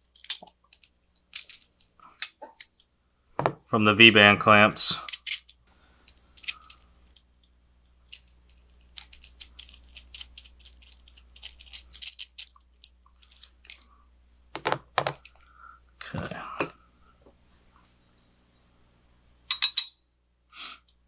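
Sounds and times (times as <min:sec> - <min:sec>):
small metal parts clinking: 0:00.0 - 0:02.8, 0:05.1 - 0:07.3, 0:08.1 - 0:13.9, 0:14.6 - 0:15.4.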